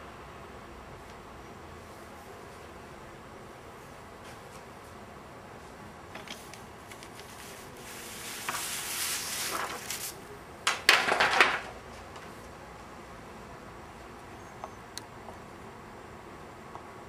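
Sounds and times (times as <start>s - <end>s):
handling rustle: 6.3s - 10.2s.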